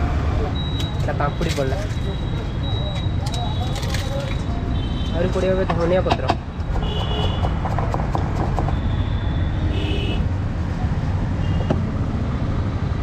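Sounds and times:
street traffic rumble: 0.0s - 13.0s
knife chopping on wooden board: 5.7s - 8.8s.

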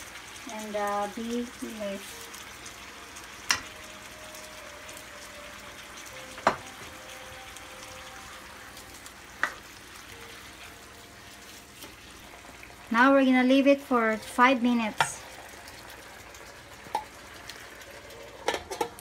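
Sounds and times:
chicken sizzling in pan: 0.0s - 19.0s.

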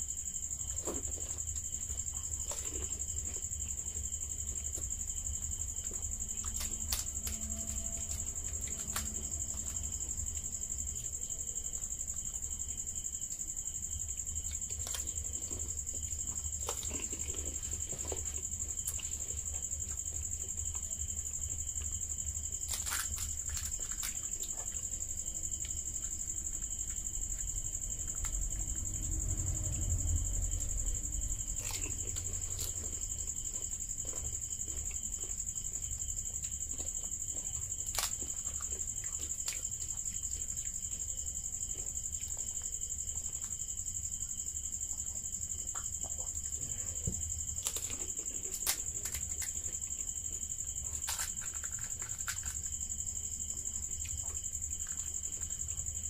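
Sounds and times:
crisp shells cracking and crunching: 22.6s - 24.8s, 37.8s - 38.7s, 47.6s - 49.6s, 50.8s - 52.7s
low rumble: 27.9s - 32.5s.

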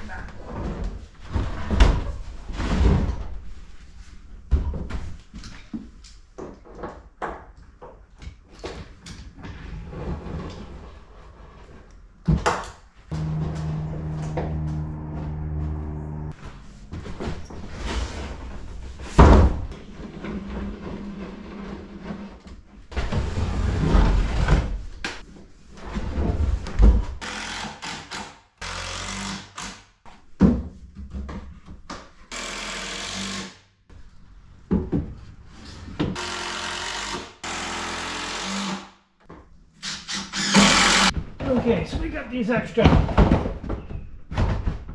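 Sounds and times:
knocks and scraping of dock float: 13.1s - 18.7s
power tool bursts: 32.3s - 33.6s, 36.2s - 38.9s, 39.8s - 41.1s.

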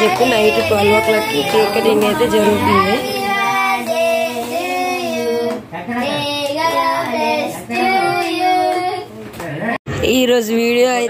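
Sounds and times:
children clapping: 0.0s - 3.6s
children singing: 0.0s - 9.1s.

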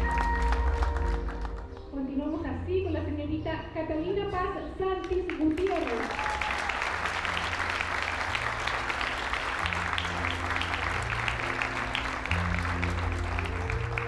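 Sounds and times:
audience applauding: 0.0s - 1.7s, 5.3s - 14.0s
slow background music: 0.0s - 14.0s.

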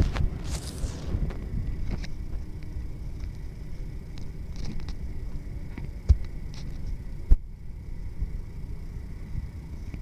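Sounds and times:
plastic bag rustling: 0.0s - 1.4s
low wind rumble: 0.0s - 10.0s.

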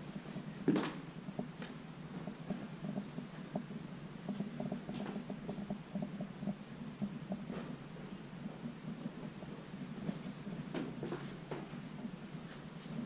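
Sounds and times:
floorboards creaking: 0.0s - 13.0s
footsteps on wooden floorboards: 7.0s - 13.0s.

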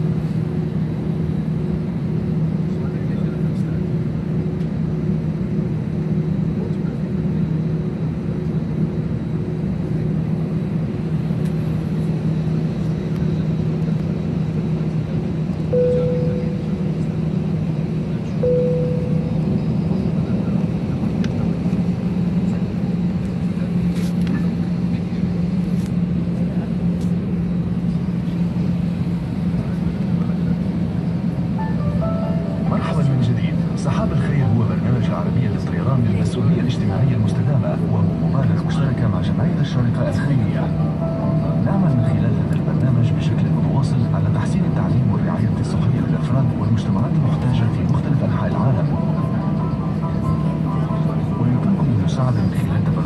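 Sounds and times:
airliner cabin drone: 0.0s - 53.0s
short electronic tones: 15.8s - 16.8s, 18.4s - 19.9s.

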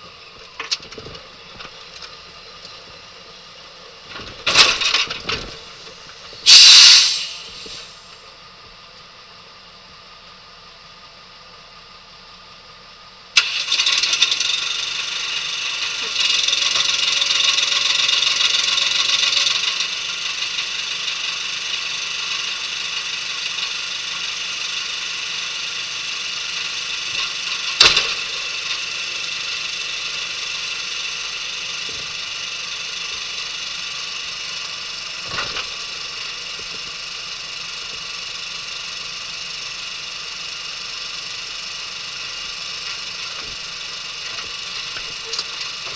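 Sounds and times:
small engine running: 13.4s - 45.9s.

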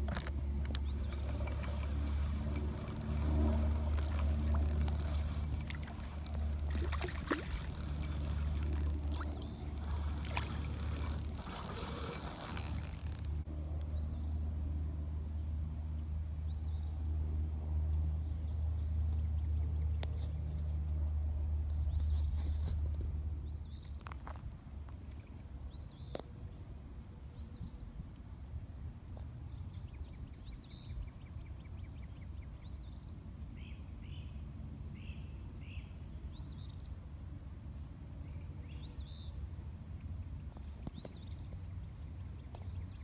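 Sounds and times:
steady low rumble: 0.0s - 20.0s
fish splashing at water surface: 1.1s - 12.2s.

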